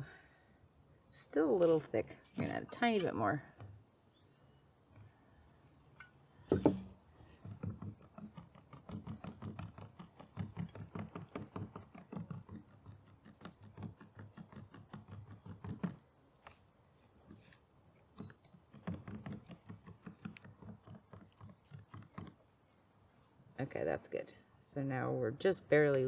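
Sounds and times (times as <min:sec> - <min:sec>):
stick stirring paint in plastic cup: 0:16.4 - 0:22.6.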